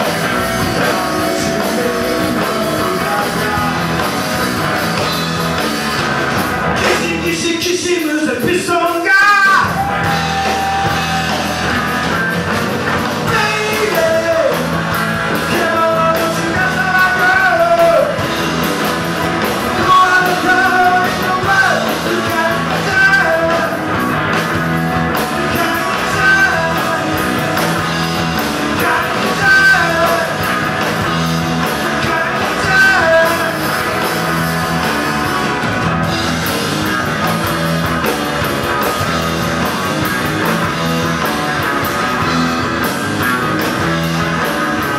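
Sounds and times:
bass guitar: 0.0 - 44.9
drum kit: 0.0 - 44.9
electric guitars: 0.0 - 44.9.

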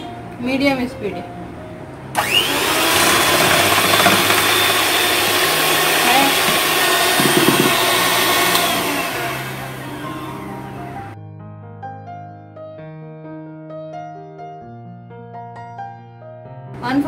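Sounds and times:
electric hand mixer whirring: 2.2 - 11.2.

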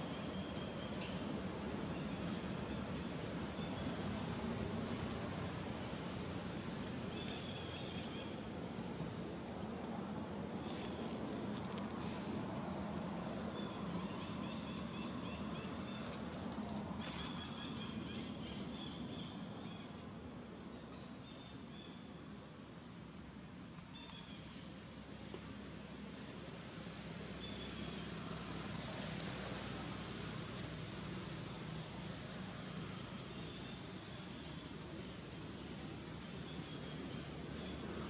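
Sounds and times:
high-pitched insect chorus: 0.0 - 38.0
insect chirps: 0.0 - 38.0.

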